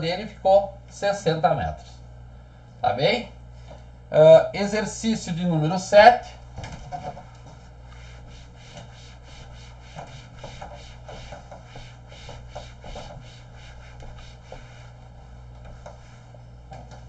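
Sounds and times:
steady low hum: 0:00.0 - 0:17.0
eraser wiping whiteboard: 0:07.2 - 0:17.0.

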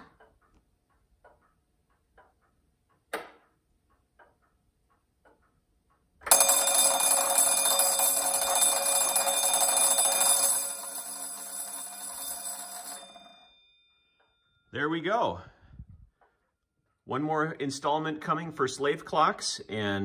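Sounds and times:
clock ticking: 0:00.0 - 0:13.4
electric alarm bell ringing: 0:06.2 - 0:14.8.

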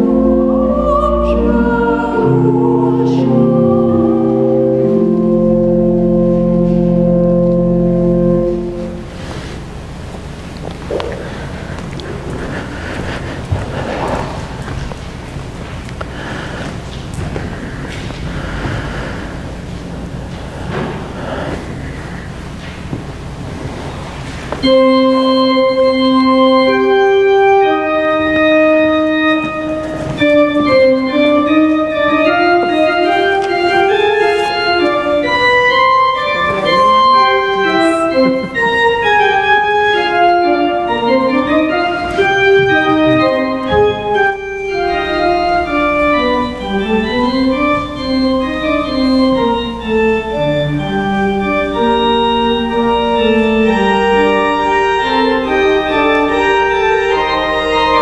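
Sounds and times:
church organ playing slow piece: 0:00.0 - 0:58.0.

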